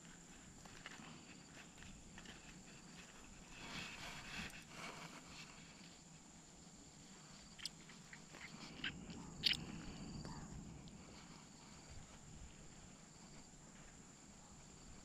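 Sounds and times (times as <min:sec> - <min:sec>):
soft rustling handling noise: 0:00.0 - 0:15.0.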